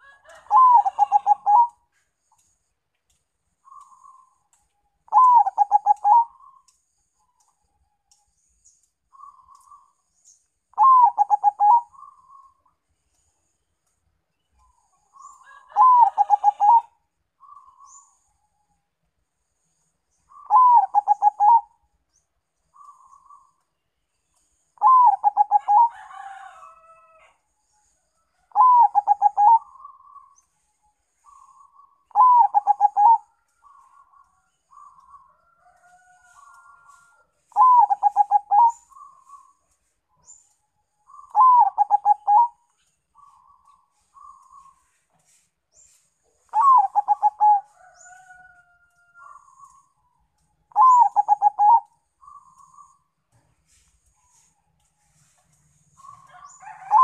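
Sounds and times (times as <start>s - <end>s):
dove cooing: 0.0s - 1.8s, 5.1s - 6.5s, 10.8s - 12.5s, 15.7s - 17.9s, 20.3s - 21.8s, 24.8s - 26.0s, 28.5s - 30.1s, 31.3s - 35.3s, 37.5s - 39.6s, 41.1s - 42.6s, 46.4s - 47.7s, 50.7s - 53.0s, 56.0s - 57.0s
faint dove coos: 0.0s - 1.8s, 15.6s - 17.8s, 28.5s - 30.0s, 32.1s - 35.3s, 35.9s - 39.6s, 46.5s - 48.2s, 50.7s - 53.0s.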